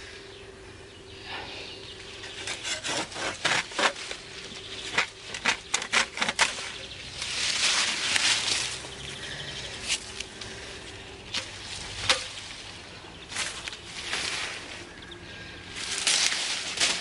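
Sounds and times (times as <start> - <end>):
rustle of leaves and branches: 1.0 - 17.0
hand saw cutting stems: 2.2 - 9.0, 9.8 - 14.9, 15.7 - 17.0.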